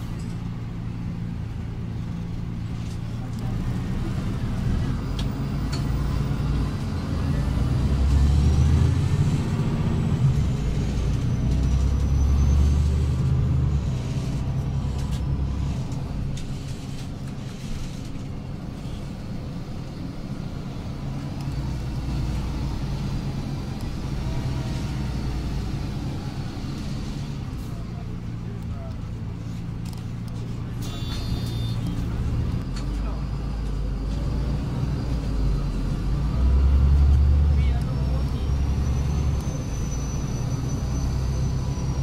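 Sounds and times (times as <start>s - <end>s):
bus engine and road rumble: 0.0s - 42.0s.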